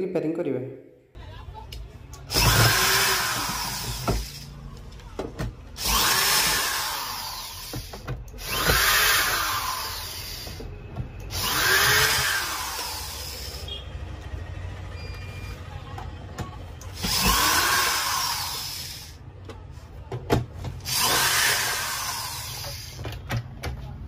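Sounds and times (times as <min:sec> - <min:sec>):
electric drill driving screws: 0:02.3 - 0:04.5, 0:05.8 - 0:10.6, 0:11.3 - 0:13.6, 0:16.9 - 0:19.2, 0:20.8 - 0:23.0.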